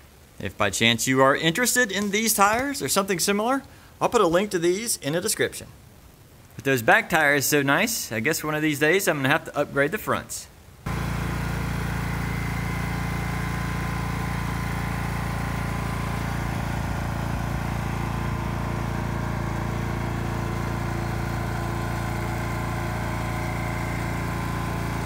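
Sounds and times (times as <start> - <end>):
lawn mower engine idling: 10.9 - 25.0.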